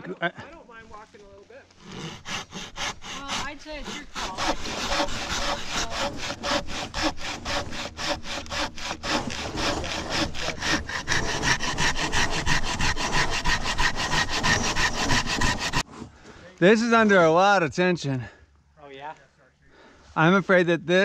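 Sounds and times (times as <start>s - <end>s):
saw rasping through log: 1.8s - 15.9s.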